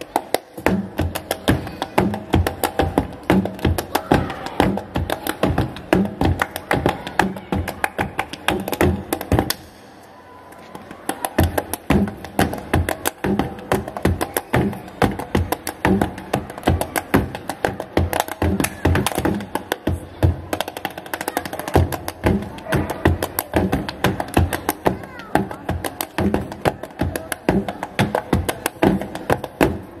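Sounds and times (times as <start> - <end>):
hand claps: 0.0 - 1.9, 5.1 - 9.8, 20.6 - 29.7
body percussion slaps: 0.0 - 9.8, 11.1 - 29.9.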